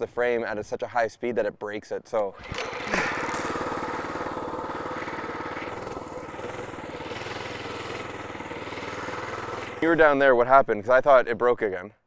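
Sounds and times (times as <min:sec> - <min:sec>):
small gasoline engine running: 0:02.3 - 0:10.2.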